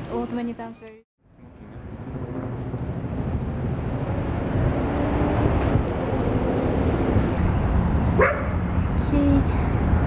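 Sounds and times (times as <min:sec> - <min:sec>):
city traffic rumble: 0:00.0 - 0:10.0.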